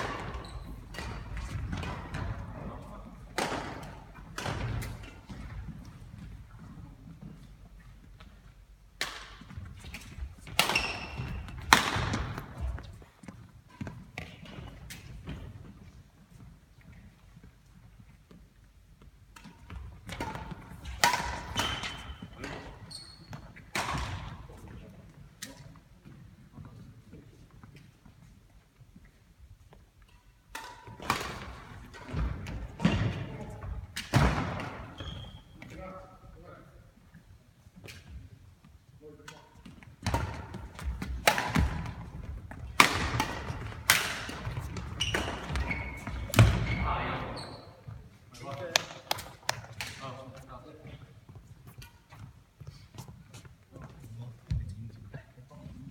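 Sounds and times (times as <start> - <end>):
shoes squeaking: 0.1 - 1.6, 21.4 - 23.7, 34.8 - 35.6, 43.5 - 48.5
rackets hitting shuttlecock: 3.3 - 5.5, 9.0 - 12.8, 19.4 - 22.6, 30.1 - 33.4, 39.2 - 46.7
rackets striking shuttlecock: 19.4 - 22.1, 40.0 - 46.6.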